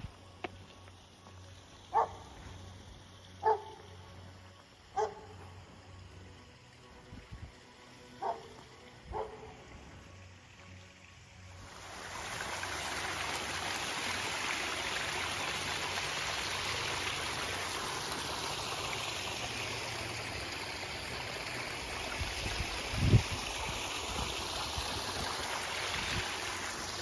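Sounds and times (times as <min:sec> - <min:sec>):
waterfall splashing over rocks: 0:11.4 - 0:27.0.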